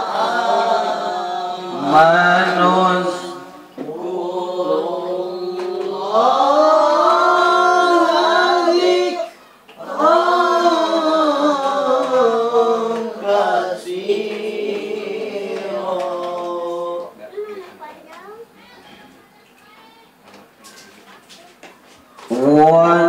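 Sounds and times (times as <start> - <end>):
melodic religious recitation: 0.0 - 17.4, 22.2 - 23.0.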